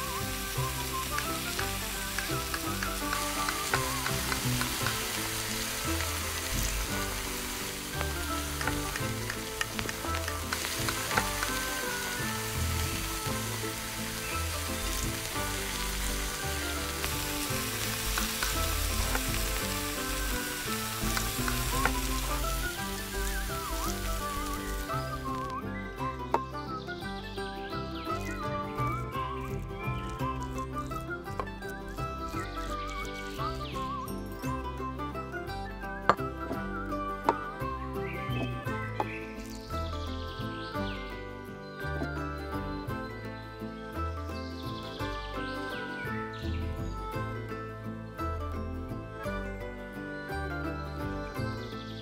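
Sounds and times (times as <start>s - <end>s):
food sizzling in a pot: 0.0s - 25.6s, 28.1s - 34.6s
background music: 0.0s - 52.0s.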